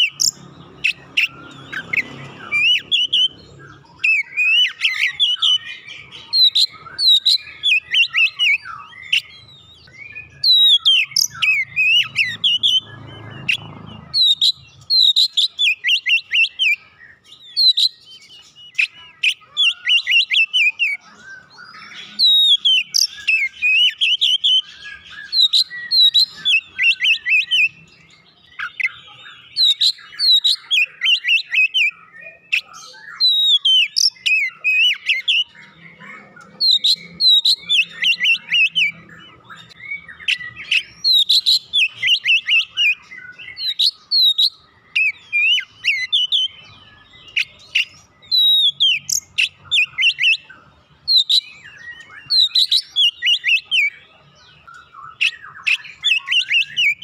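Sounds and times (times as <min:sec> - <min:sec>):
bird singing whistled notes: 0:00.0 - 0:57.0.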